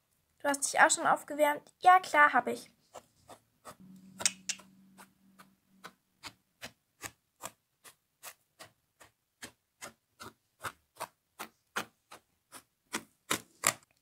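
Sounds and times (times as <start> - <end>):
faint low hum: 3.8 - 5.9.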